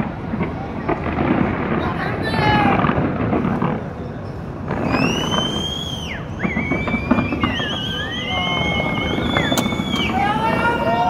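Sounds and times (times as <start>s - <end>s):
crowd rumble: 0.0s - 11.0s
fireworks noise: 0.0s - 11.0s
gliding whistling tones: 4.9s - 11.0s.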